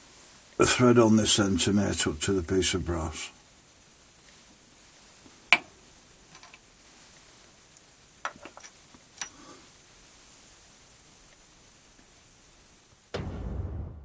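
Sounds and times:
metal parts clinking on steel table: 6.3 - 6.6.

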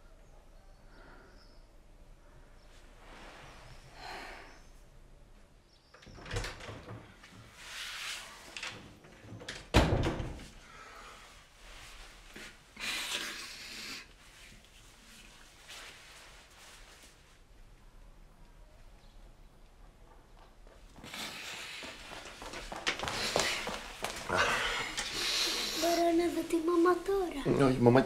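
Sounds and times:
door thump: 9.7 - 10.4
rustling: 14.2 - 17.6, 20.4 - 27.9.

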